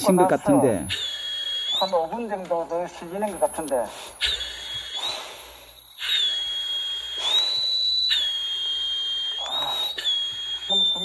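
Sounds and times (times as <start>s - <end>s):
breaths through facemask valve: 0.9s - 1.9s, 3.8s - 11.0s
shrill warning whistle: 0.9s - 2.4s, 3.0s - 11.0s.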